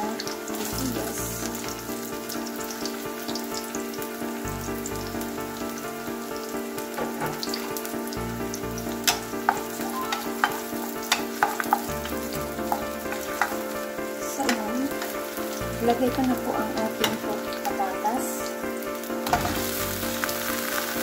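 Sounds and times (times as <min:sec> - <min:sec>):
onion sizzling in oil: 0:00.0 - 0:21.0
wooden spatula clicking on pan: 0:09.1 - 0:13.6.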